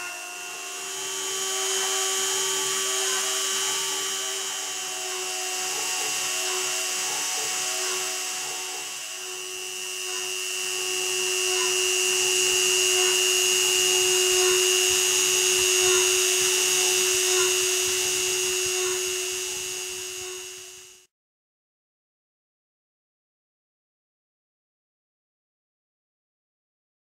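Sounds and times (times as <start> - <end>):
rotary tool engraving wood: 0.0 - 21.1.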